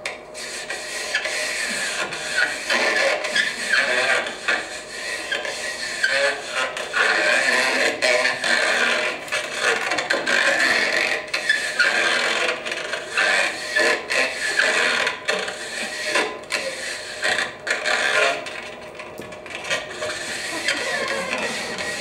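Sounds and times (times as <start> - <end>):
rubber balloons squeaking: 5.2 - 18.8, 19.4 - 22.0.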